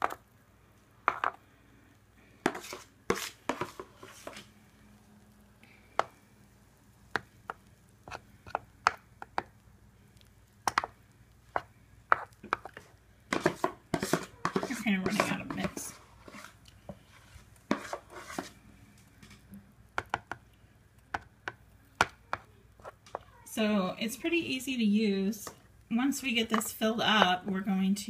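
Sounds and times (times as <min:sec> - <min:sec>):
utensil tapping waffle maker plates: 0:10.6 - 0:15.9, 0:20.0 - 0:20.4.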